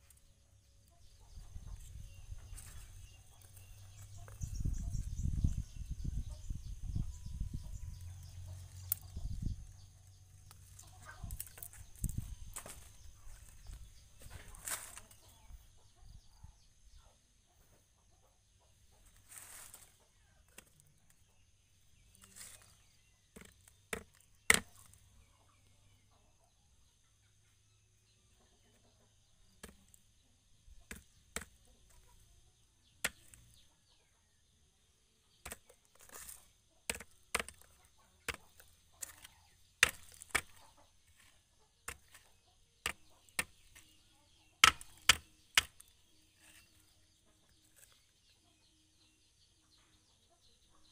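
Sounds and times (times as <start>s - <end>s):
sharp clicks and knocks: 44.6s - 45.9s.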